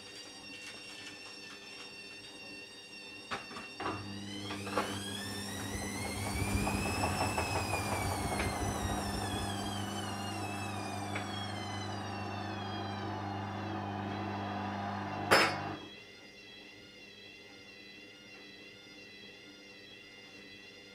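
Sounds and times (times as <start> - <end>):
washing machine motor whining: 3.4 - 15.9
machine hum: 3.9 - 15.9
drum knocking: 5.6 - 9.6.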